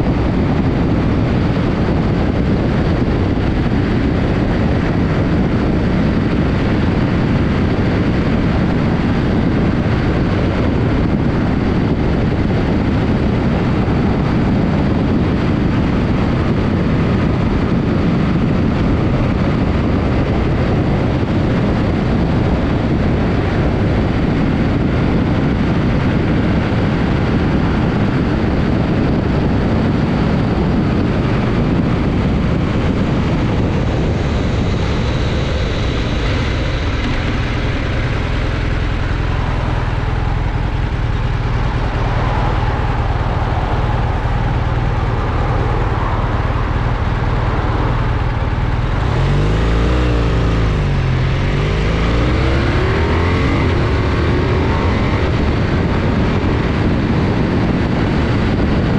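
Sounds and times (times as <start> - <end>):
motorcycle running: 0.0 - 58.9
wind buffeting microphone: 0.0 - 58.9.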